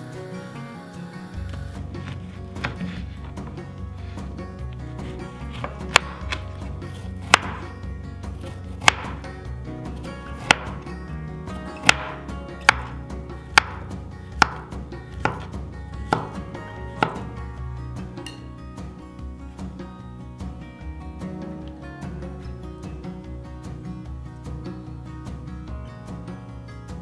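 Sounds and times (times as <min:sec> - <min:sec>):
soft background music: 0:00.0 - 0:27.0
knife slicing fruit: 0:02.1 - 0:03.6, 0:05.0 - 0:07.6, 0:08.4 - 0:09.2, 0:10.4 - 0:10.8, 0:11.8 - 0:17.3
blade knocking on wooden board: 0:05.0 - 0:07.7, 0:08.8 - 0:09.2, 0:10.4 - 0:10.9, 0:11.8 - 0:17.3.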